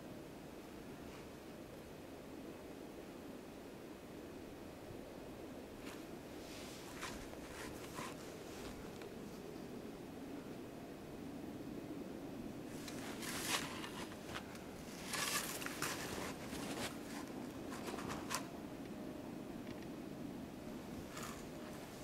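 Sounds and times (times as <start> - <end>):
clothing and gear rustling: 5.8 - 9.0, 12.7 - 18.5, 21.0 - 22.0.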